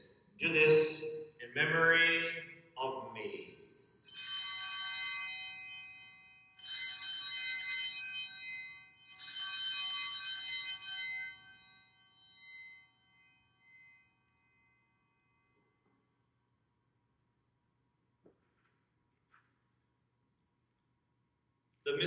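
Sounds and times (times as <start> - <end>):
altar bells jingling: 2.8 - 15.6.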